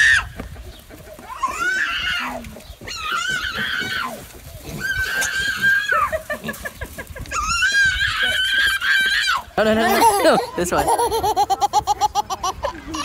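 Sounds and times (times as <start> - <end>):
toddler squealing shrilly: 1.3 - 4.2, 4.8 - 6.1, 7.3 - 10.4.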